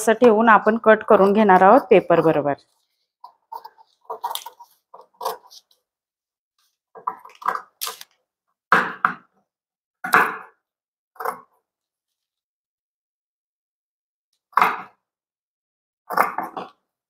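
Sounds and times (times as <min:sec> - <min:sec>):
scissors cutting cloth: 0:03.5 - 0:05.7, 0:07.3 - 0:08.1.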